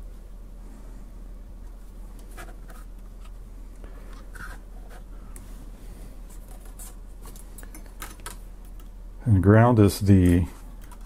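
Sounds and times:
steady low hum: 0:00.0 - 0:11.0
hands handling wire and small parts: 0:06.2 - 0:08.9.

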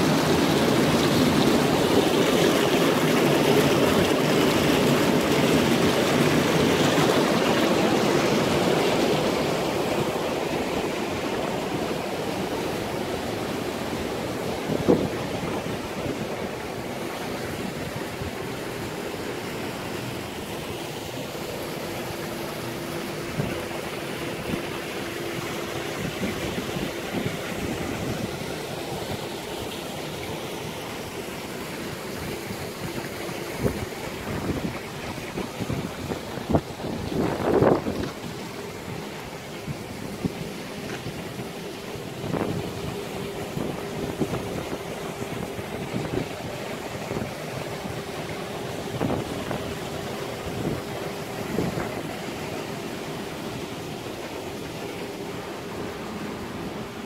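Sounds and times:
hot tub jets bubbling: 0:00.0 - 0:57.0
waterfall pouring: 0:00.0 - 0:57.0.

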